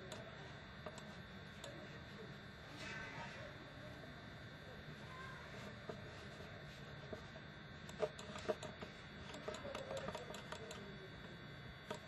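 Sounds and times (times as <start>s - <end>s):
computer mouse clicks: 0.0s - 1.8s, 7.1s - 10.9s
faint room hum: 0.0s - 12.0s.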